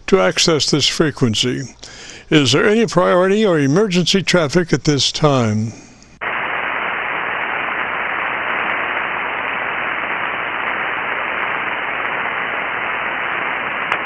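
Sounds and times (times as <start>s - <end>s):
radio band noise hiss: 3.8s - 14.0s.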